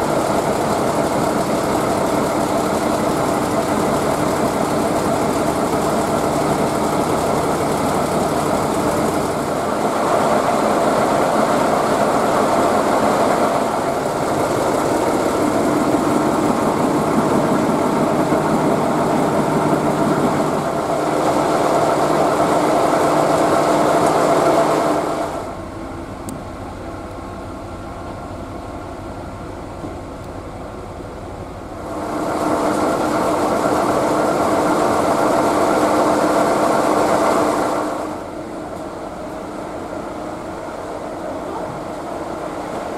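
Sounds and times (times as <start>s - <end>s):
diesel engine mechanical drone: 0.0s - 42.9s.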